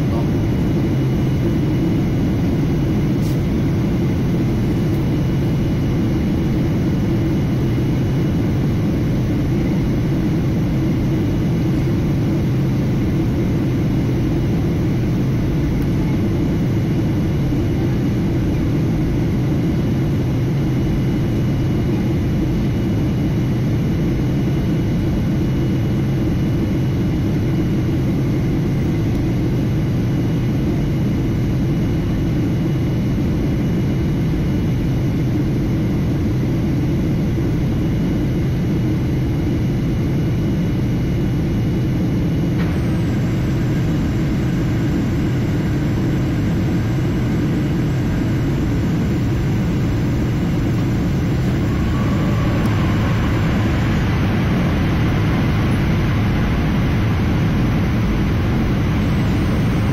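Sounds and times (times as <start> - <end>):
airliner cabin rumble: 0.0 - 59.9
faint high tones: 48.7 - 56.3.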